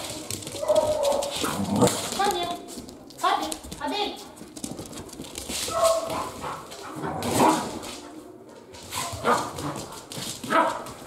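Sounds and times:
dogs barking: 10.5s - 11.0s.

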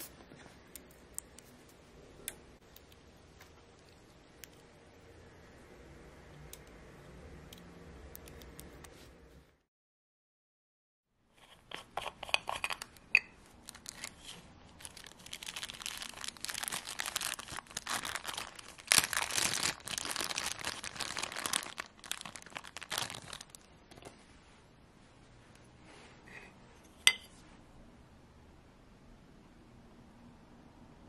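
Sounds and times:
plastic bag crinkling: 13.6s - 23.7s.

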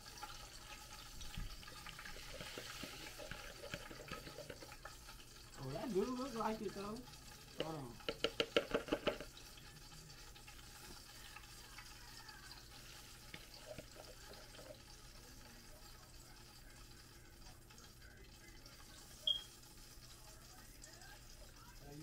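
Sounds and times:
sauce pouring and dripping: 0.0s - 22.0s.

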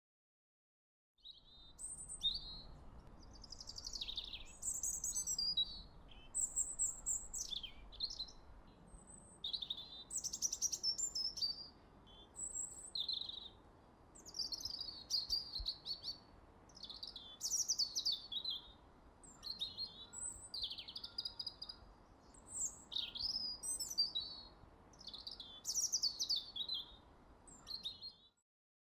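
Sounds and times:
birds chirping: 1.3s - 11.6s.

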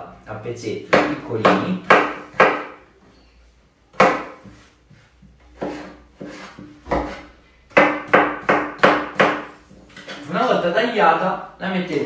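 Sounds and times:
knife chopping on cutting board: 0.9s - 2.8s, 3.9s - 4.7s, 5.5s - 9.6s.

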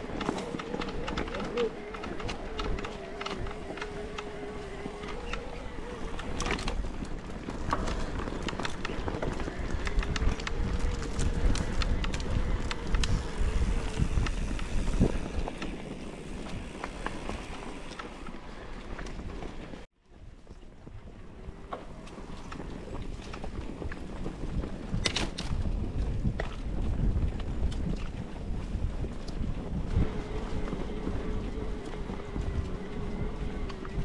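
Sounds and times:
electric bike motor whine: 0.0s - 19.5s, 28.6s - 34.0s.

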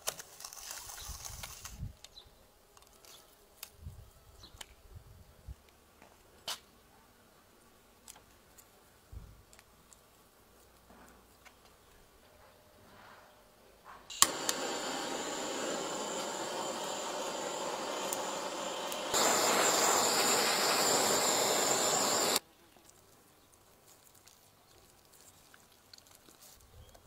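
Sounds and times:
rushing hiss: 14.1s - 22.4s.

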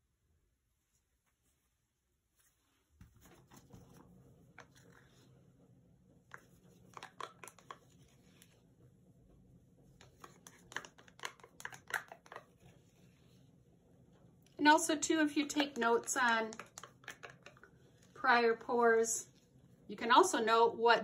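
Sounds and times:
low steady hum: 0.0s - 21.0s
plastic cup crinkling and clicking: 6.3s - 8.2s, 10.0s - 12.8s, 15.4s - 18.7s.

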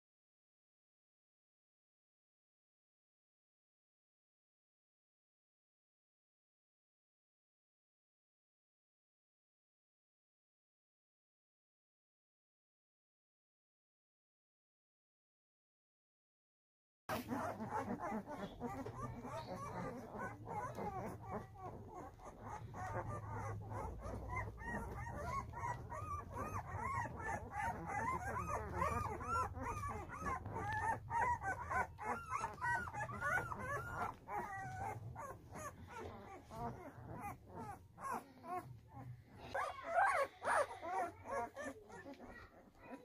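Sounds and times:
puppies whimpering and yipping: 17.1s - 43.0s.

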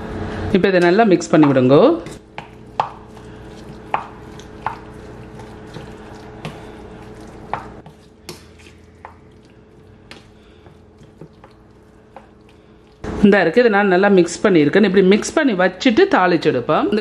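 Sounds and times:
wooden spoon mashing wet mix: 0.9s - 13.2s.

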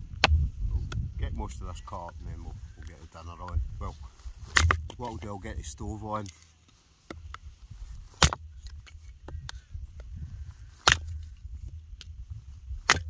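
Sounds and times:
axe striking wood: 4.5s - 5.1s, 8.2s - 8.8s, 10.8s - 11.2s
wood pieces knocking and clattering: 4.5s - 5.3s.

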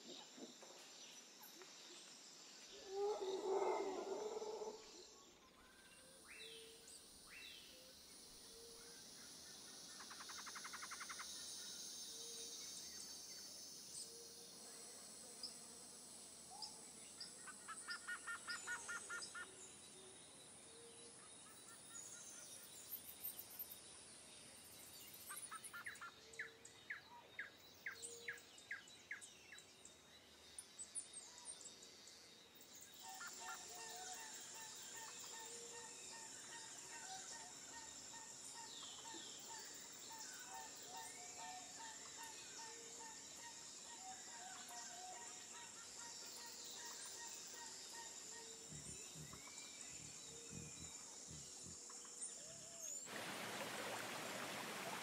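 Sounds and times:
birds singing and calling: 38.5s - 53.1s
steady high hiss: 48.5s - 55.0s.

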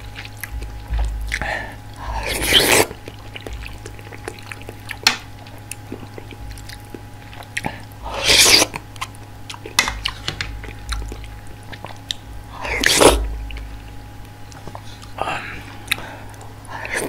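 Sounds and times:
soft chewing: 0.0s - 17.0s
wet mouth sounds: 0.2s - 13.6s.

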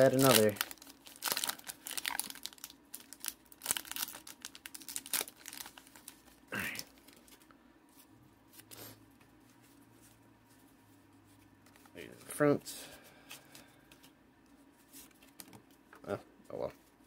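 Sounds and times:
foil wrapper tearing and crinkling: 0.0s - 7.2s.

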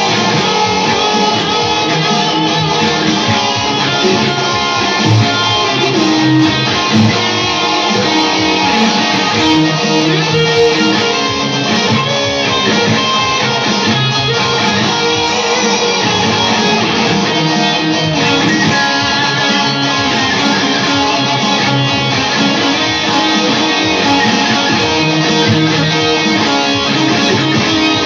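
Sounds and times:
rock instrumental on electric guitar: 0.0s - 28.0s.

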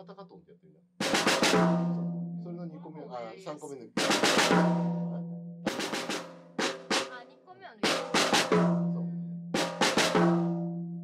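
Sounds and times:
drum kit flurries with sticks: 1.0s - 3.2s, 3.8s - 9.0s, 9.6s - 11.0s
drum ringing low tone: 1.3s - 3.0s, 4.0s - 7.0s, 7.9s - 11.0s.

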